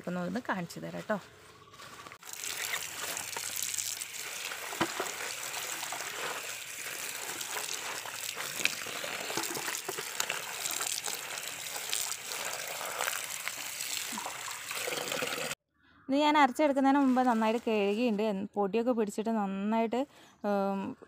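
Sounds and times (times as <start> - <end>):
hands rinsing leaves: 1.0 - 15.6, 17.0 - 18.1
water pouring into a plastic bucket: 2.2 - 15.6.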